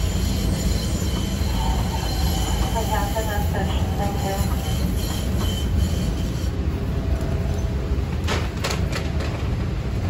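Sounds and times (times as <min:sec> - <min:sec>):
rail car wheels rumbling: 0:00.0 - 0:10.0
faint wheel squeal: 0:04.0 - 0:06.6.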